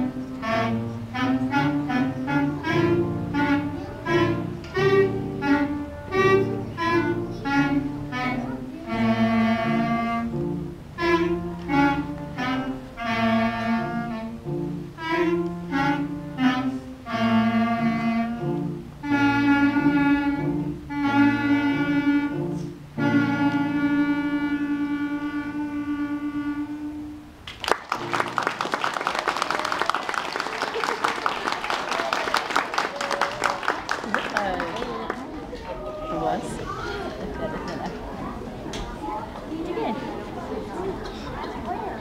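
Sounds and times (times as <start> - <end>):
children's clarinet ensemble playing: 0.0 - 27.4
audience applause: 27.5 - 38.3.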